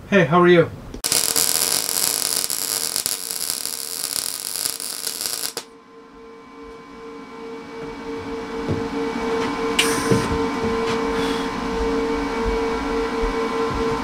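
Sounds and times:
welder hum: 0:01.0 - 0:05.7
welding arc crackling: 0:01.0 - 0:05.7.

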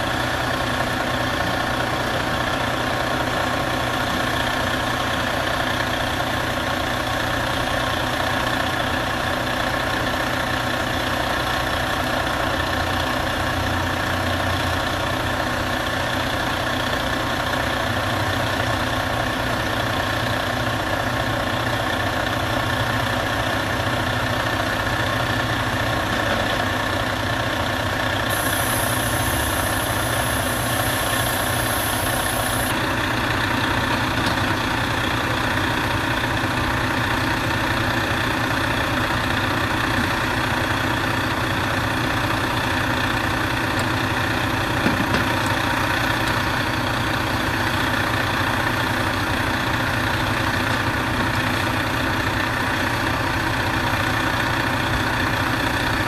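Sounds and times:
truck engine idling: 0:00.0 - 0:56.0
high hiss: 0:28.3 - 0:32.7.

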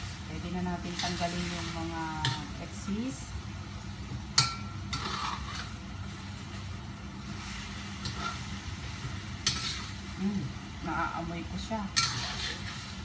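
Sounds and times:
low steady hum: 0:00.0 - 0:13.0
meat sizzling in fat: 0:00.0 - 0:13.0
metal spatula scraping a wok: 0:00.9 - 0:02.5, 0:04.4 - 0:06.2, 0:07.4 - 0:08.7, 0:09.4 - 0:10.1, 0:11.9 - 0:13.0.

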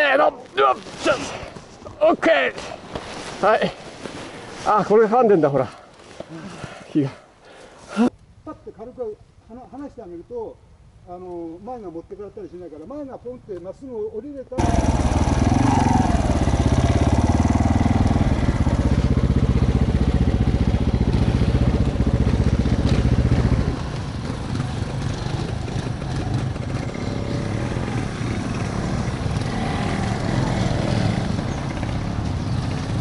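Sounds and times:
off-road motorcycle engine running: 0:14.6 - 0:33.0.

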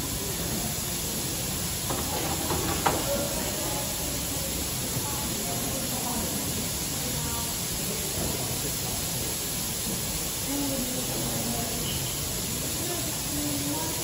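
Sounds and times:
steam hissing from locomotive: 0:00.0 - 0:14.0.

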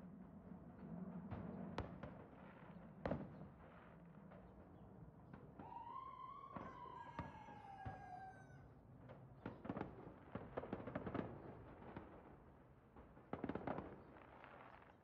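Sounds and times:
fireworks popping and banging: 0:09.0 - 0:15.0.

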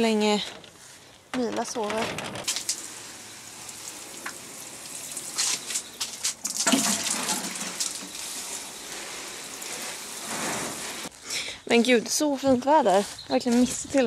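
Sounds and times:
water sprinkling onto soil and leaves: 0:02.4 - 0:11.1.

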